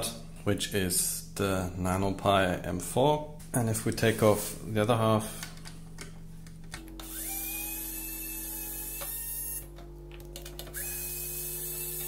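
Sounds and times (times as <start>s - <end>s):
electric screwdriver motor whine: 6.8s - 12.0s.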